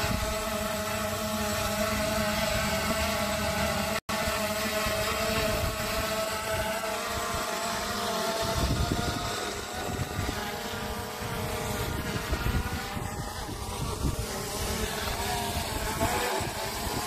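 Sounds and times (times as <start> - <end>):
wind rumbling on microphone: 0.0 - 0.8, 4.7 - 7.6, 8.4 - 17.0
drone propellers whirring: 0.0 - 17.0.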